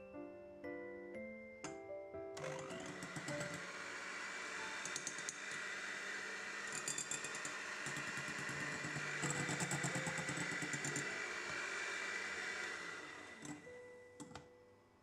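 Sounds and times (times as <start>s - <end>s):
electric hand mixer whirring: 2.4s - 14.3s.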